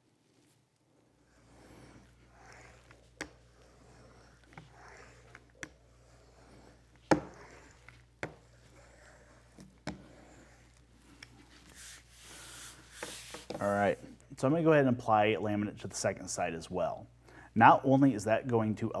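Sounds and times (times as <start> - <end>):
roller rolling over laminate: 1.3 - 13.6.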